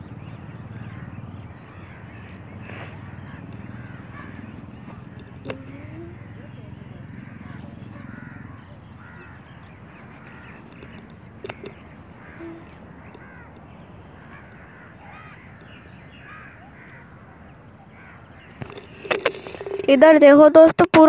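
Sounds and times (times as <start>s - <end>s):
crows cawing: 0.6s - 19.9s
sharp clicks: 10.2s - 11.8s.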